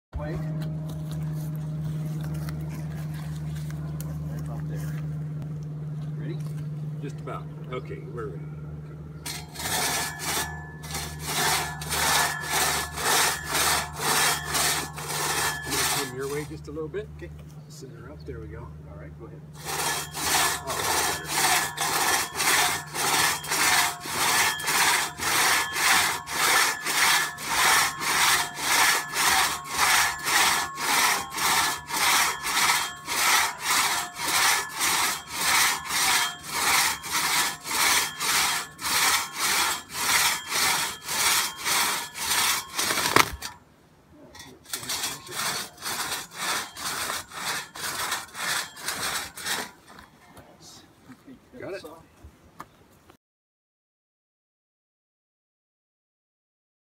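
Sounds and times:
crosscut saw rasping through log: 0:09.3 - 0:17.1, 0:19.6 - 0:43.6, 0:44.4 - 0:50.0.

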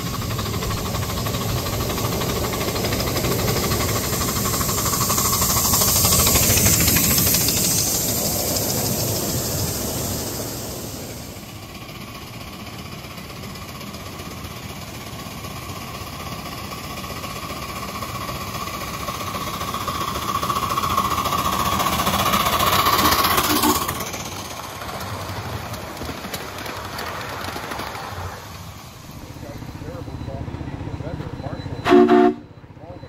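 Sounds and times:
miniature steam locomotive running: 0:00.0 - 0:33.0
steady high tone: 0:19.3 - 0:24.1, 0:29.0 - 0:33.0.

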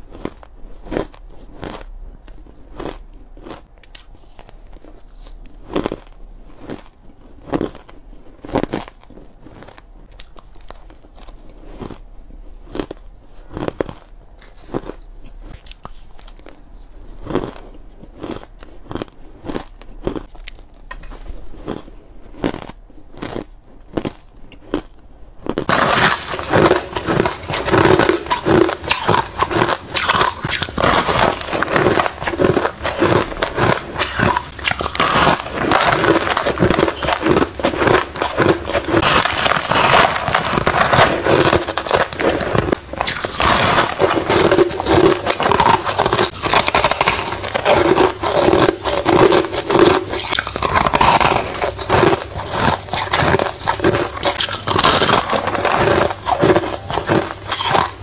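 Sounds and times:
ice crunching: 0:25.7 - 0:58.0.

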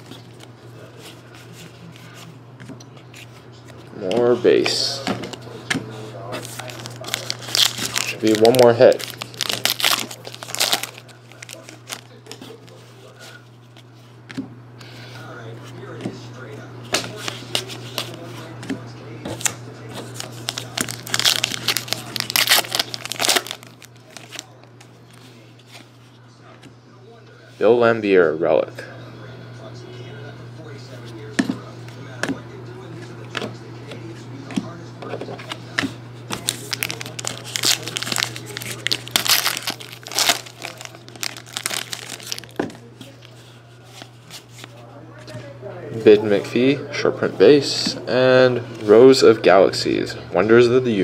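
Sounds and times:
foil wrapper crinkling and tearing: 0:06.4 - 0:12.8, 0:20.0 - 0:24.6, 0:36.3 - 0:44.7.

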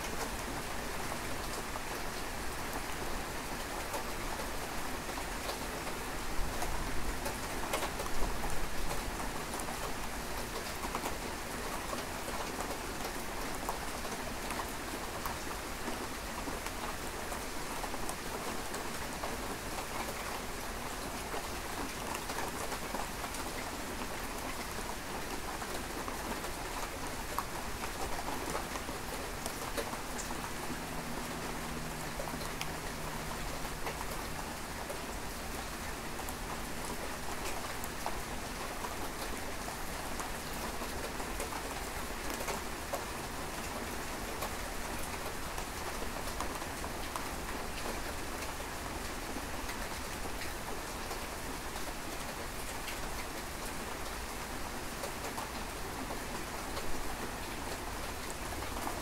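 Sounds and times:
rain drops ticking on a surface: 0:00.0 - 0:59.0.

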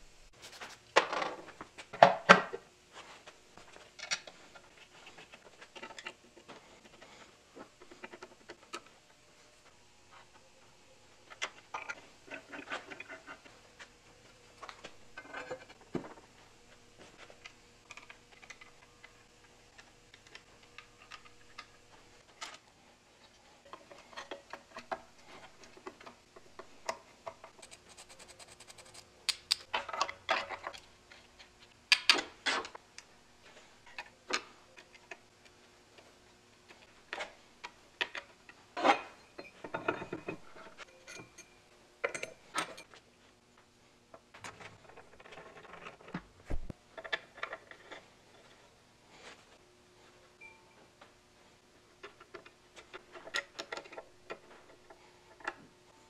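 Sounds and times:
metal parts and tools clinking: 0:38.8 - 0:43.0.

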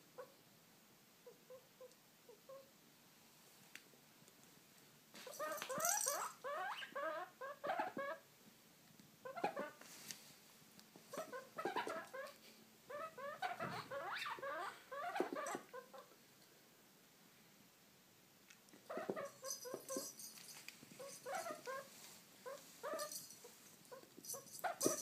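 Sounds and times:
guinea pig squeaking: 0:05.2 - 0:08.2, 0:09.2 - 0:09.8, 0:11.1 - 0:16.1, 0:18.9 - 0:20.2, 0:21.0 - 0:23.2, 0:23.9 - 0:25.0.

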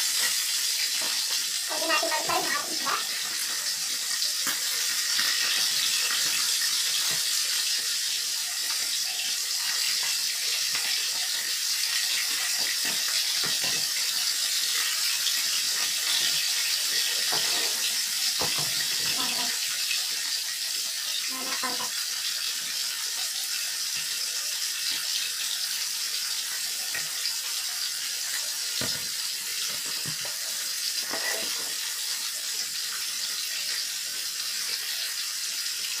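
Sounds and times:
fish sizzling in hot oil: 0:00.0 - 0:36.0
utensil scraping a wok: 0:17.2 - 0:18.0.

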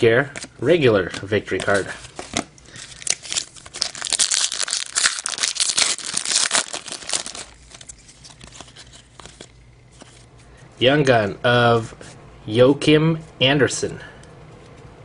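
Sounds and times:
foil wrapper crinkling and tearing: 0:02.7 - 0:09.5.

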